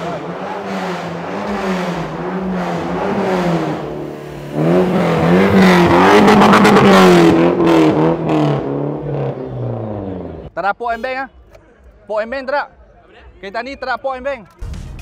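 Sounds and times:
car engine revving: 0.0s - 10.5s.

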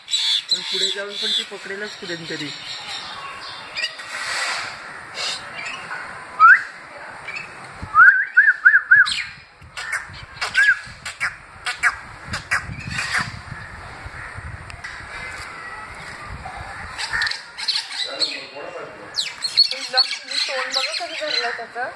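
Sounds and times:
birds whistling calls: 4.7s - 13.7s, 16.8s - 21.8s.

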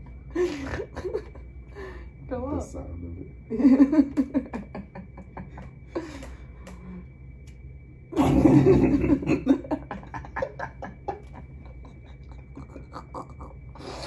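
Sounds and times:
people laughing: 0.4s - 1.4s, 3.5s - 6.3s, 8.3s - 13.5s.

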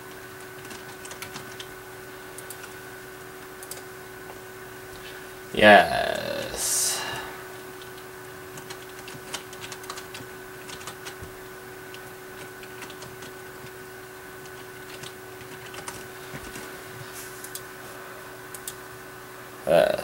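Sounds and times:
electrical hum: 0.0s - 20.0s.

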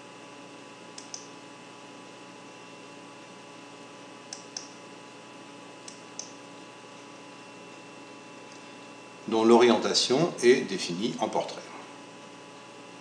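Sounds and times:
faint electrical hum: 0.0s - 13.0s
computer mouse clicking: 1.0s - 1.3s, 4.3s - 4.8s.

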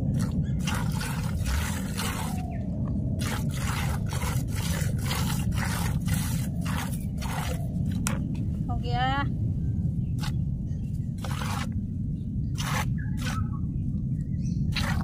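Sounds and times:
steady low rumble: 0.0s - 15.0s
milk squirting into plastic bucket: 0.1s - 2.4s, 3.2s - 8.2s, 11.2s - 11.8s, 12.6s - 13.4s, 14.8s - 15.0s.

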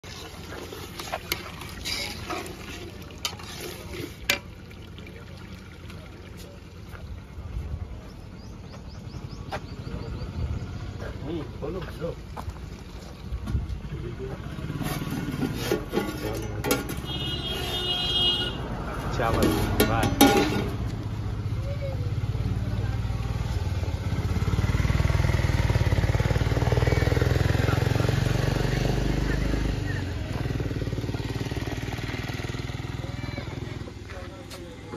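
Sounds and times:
spatula scraping thick curry: 0.1s - 4.3s, 14.7s - 18.0s.

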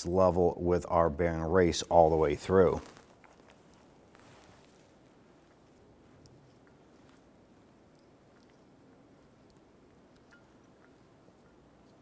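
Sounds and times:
faint ticks: 6.2s - 12.0s.

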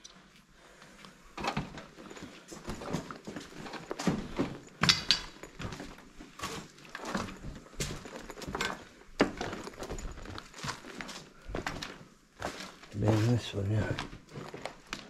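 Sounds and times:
footsteps crunching over rubble: 0.7s - 15.0s.

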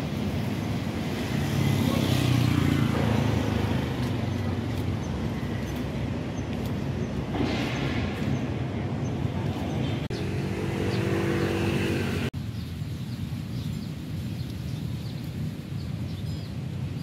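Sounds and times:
cars and motorbikes passing: 0.0s - 12.4s
steady engine hum: 0.0s - 12.4s
traffic rumble: 0.0s - 17.0s.

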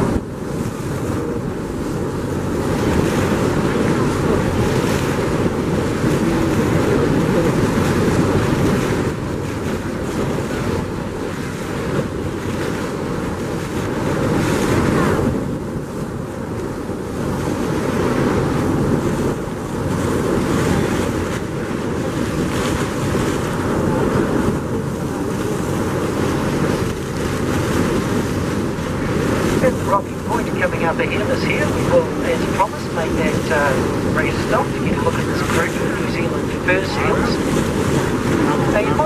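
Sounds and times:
water washing beneath hull: 0.0s - 39.0s
wind buffeting microphone: 0.0s - 39.0s.

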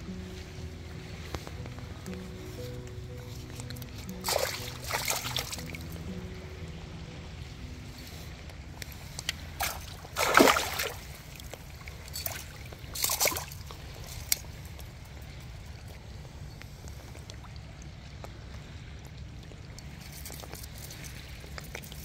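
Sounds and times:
water splashing: 0.0s - 16.1s
steady low rumble: 0.0s - 20.1s.

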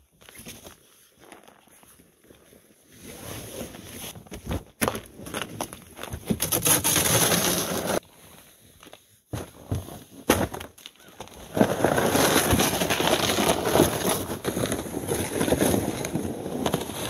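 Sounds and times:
sled dragged across icy pavement: 6.4s - 8.0s, 11.0s - 17.0s.

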